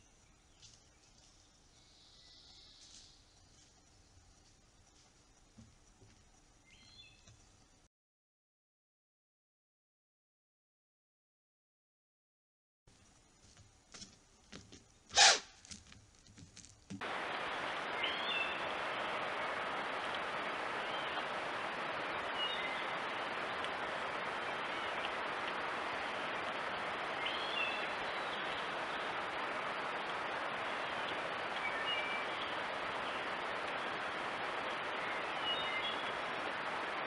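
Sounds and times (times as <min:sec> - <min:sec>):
steady outdoor hiss: 0:00.0 - 0:07.9, 0:12.9 - 0:37.0
bird chirps: 0:06.6 - 0:07.3, 0:17.8 - 0:18.7, 0:27.1 - 0:29.0, 0:30.6 - 0:33.9, 0:34.7 - 0:36.4.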